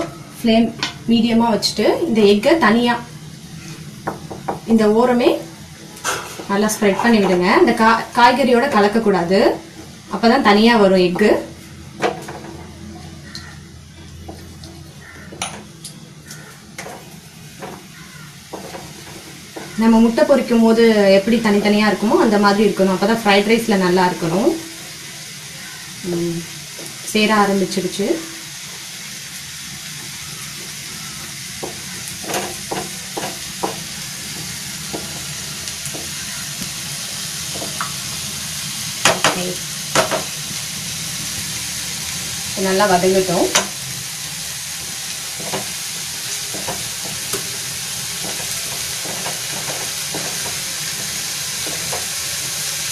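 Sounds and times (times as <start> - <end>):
egg sizzling in oil: 2.2 - 52.9
spatula knocking on frying pan: 4.0 - 4.7, 16.8 - 19.8, 31.6 - 36.4, 39.0 - 40.3, 46.4 - 47.5, 48.2 - 52.1
spatula knocking against pan: 31.6 - 35.3.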